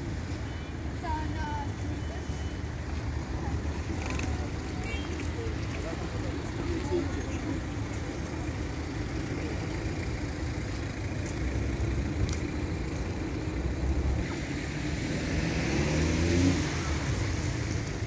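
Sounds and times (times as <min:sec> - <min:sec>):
car engines running: 0:00.0 - 0:18.0
vehicle speeding up and passing: 0:11.5 - 0:18.0
tyres hissing on wet road: 0:14.0 - 0:18.0.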